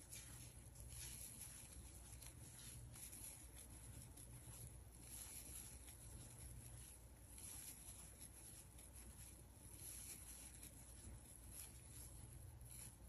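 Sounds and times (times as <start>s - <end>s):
soft rustles of yarn crocheting: 0.0s - 13.0s.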